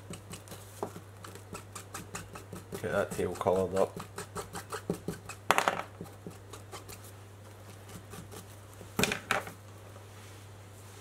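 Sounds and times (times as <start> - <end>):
objects knocking on bench: 5.5 - 6.0.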